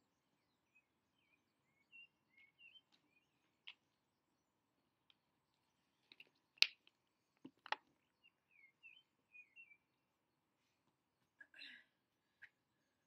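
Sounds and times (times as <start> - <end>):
high bird chirps: 0.8 - 3.4.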